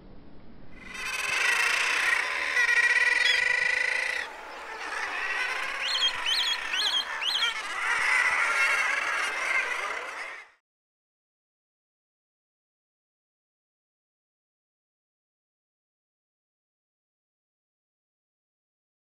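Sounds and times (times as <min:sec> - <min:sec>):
seabirds calling: 0:00.8 - 0:10.6.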